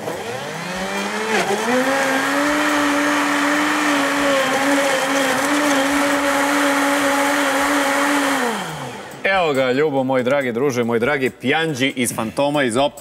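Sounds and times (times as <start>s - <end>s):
blender motor whining: 0.0s - 9.2s.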